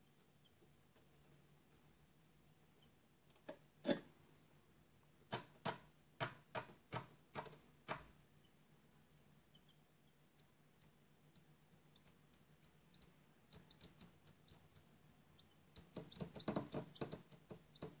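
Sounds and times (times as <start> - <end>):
chick pecking cardboard: 5.2 - 8.1, 11.7 - 18.0.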